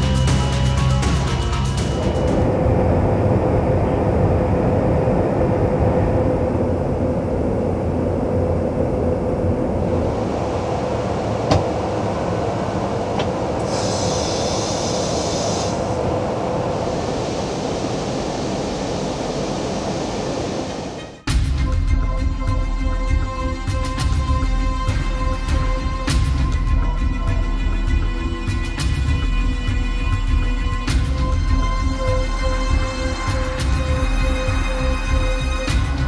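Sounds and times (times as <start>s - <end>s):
aircraft cabin rumble: 1.2s - 21.2s
brief high hiss: 13.6s - 15.9s.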